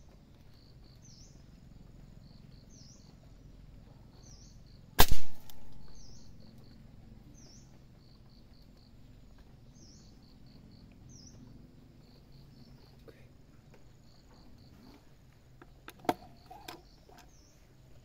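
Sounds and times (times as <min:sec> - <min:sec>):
faint outdoor background noise: 0:00.0 - 0:18.0
air rifle shot echo: 0:05.0 - 0:06.2.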